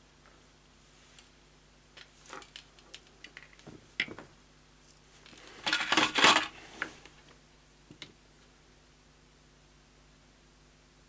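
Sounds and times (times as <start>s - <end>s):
metal tools rattling clatter: 5.6s - 6.6s.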